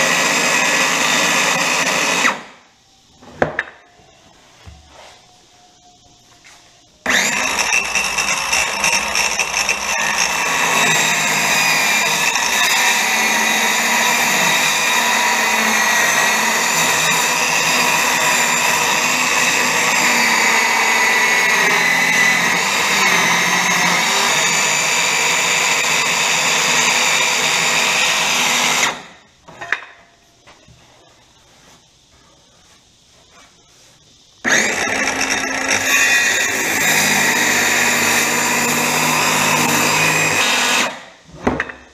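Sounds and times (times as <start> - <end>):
circular saw cutting wood: 0.0 - 2.5, 7.0 - 29.1, 34.4 - 41.1.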